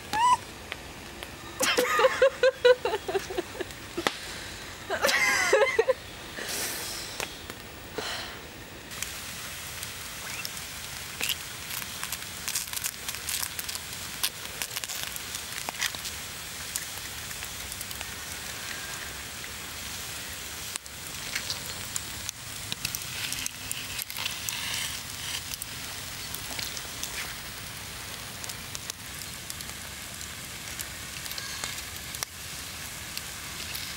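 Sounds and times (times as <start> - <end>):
log fire crackling and popping: 0.0 - 33.9
person laughing: 1.6 - 4.1, 4.8 - 6.6.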